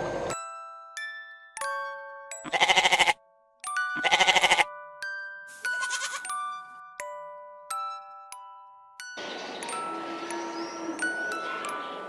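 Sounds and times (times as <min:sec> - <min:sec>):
glockenspiel-like background music: 0:00.3 - 0:12.0
sheep or goat bleating: 0:02.4 - 0:03.2, 0:04.0 - 0:04.7, 0:05.7 - 0:06.4.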